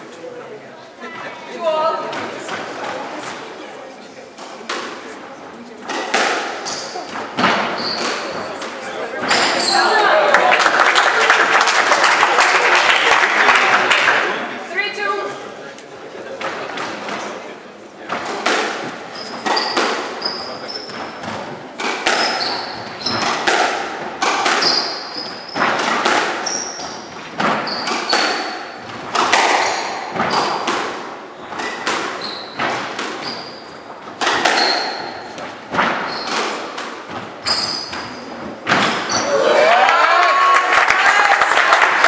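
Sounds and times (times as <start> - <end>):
squash ball hits: 5.8 - 9.7, 18.1 - 39.3
shoes squeaking on wooden floor: 5.9 - 10.0, 18.2 - 30.7, 31.3 - 39.3.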